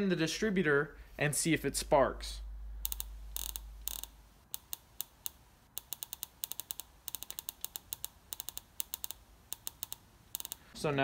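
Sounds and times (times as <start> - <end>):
sharp spark clicks: 2.8 - 10.8.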